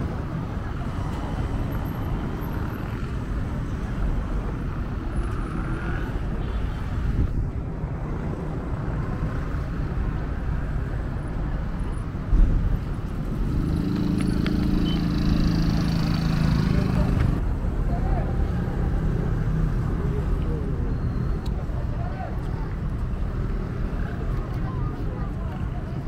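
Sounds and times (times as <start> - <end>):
traffic rumble: 0.0 - 26.0
engine hum: 12.4 - 21.5.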